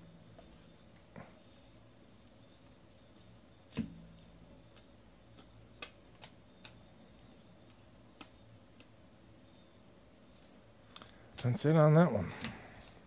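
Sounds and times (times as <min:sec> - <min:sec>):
cards flicked and shuffled: 0:04.7 - 0:06.9, 0:07.6 - 0:09.0.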